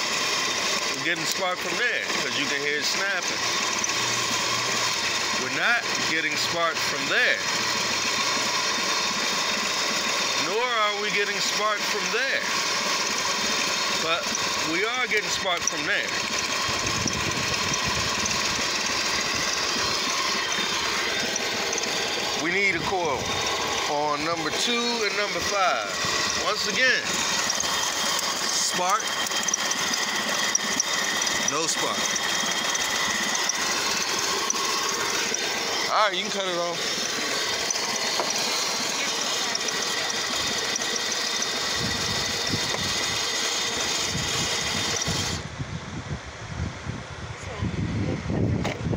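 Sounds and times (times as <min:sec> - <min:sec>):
car engine idling roughly: 0:00.0 - 0:45.4.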